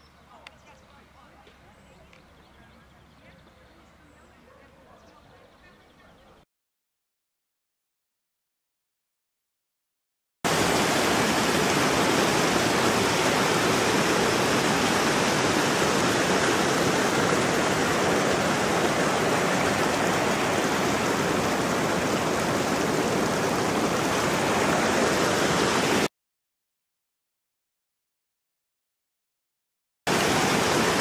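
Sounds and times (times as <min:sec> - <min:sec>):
river water rushing: 0:10.5 - 0:26.1, 0:30.1 - 0:31.0.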